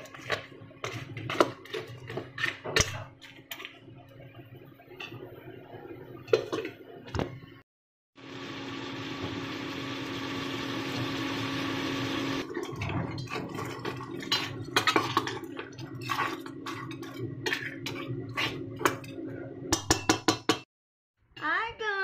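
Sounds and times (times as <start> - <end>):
induction cooktop hum: 8.2 - 20.6
metal ladle scraping pot: 12.5 - 19.4.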